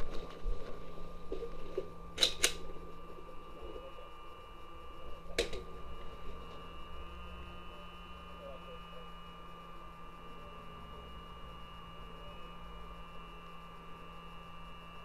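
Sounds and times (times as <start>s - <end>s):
faint steady hum: 0.0s - 15.0s
sharp mechanical clicks: 2.2s - 2.7s.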